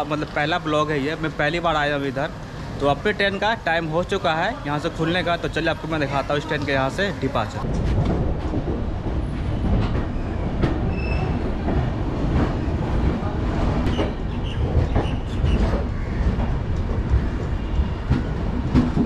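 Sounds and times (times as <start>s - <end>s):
clicks and knocks of train: 7.6s - 19.0s
train wheels rumbling on rails: 7.6s - 19.0s.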